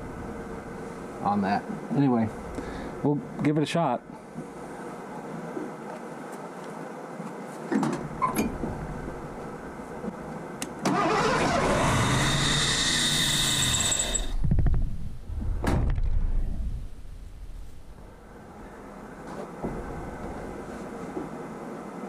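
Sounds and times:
engine cranking with whine: 10.8 - 14.4
engine catching and firing: 10.8 - 14.5.

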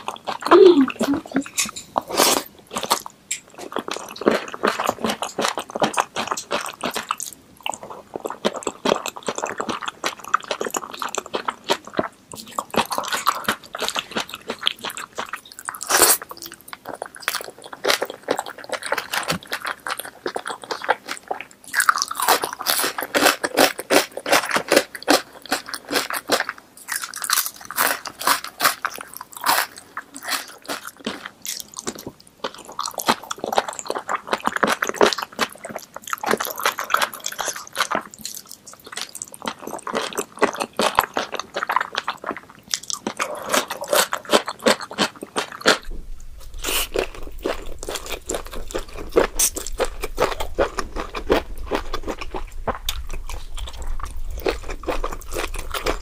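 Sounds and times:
wet chewing: 0.0 - 56.0
sharp crunching: 45.4 - 56.0.

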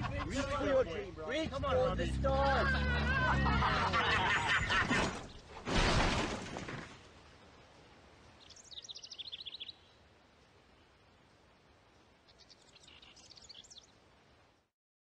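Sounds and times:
car pulling away on gravel: 0.0 - 7.0
bird chirping: 8.3 - 10.0, 12.2 - 14.0.

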